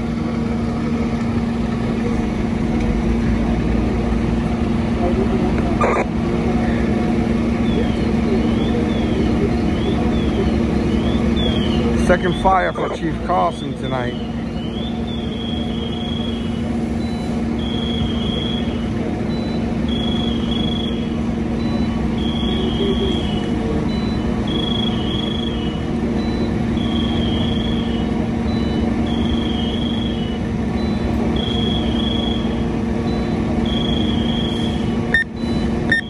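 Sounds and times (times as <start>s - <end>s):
engines idling: 0.0s - 36.0s
high electronic beeps: 5.8s - 6.1s, 17.0s - 36.0s.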